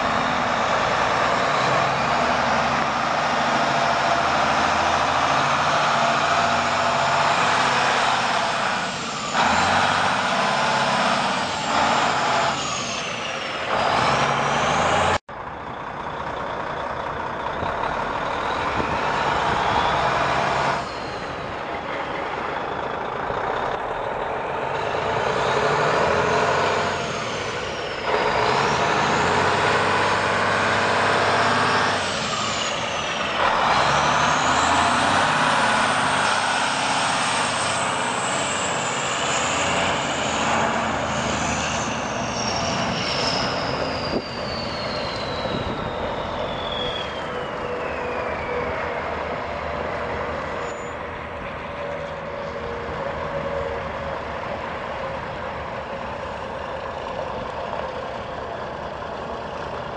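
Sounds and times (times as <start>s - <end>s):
truck diesel engine running: 0.0s - 59.9s.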